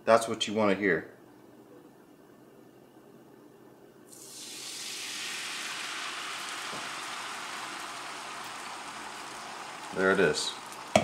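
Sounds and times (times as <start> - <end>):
eggs sizzling in a frying pan: 4.1 - 11.0.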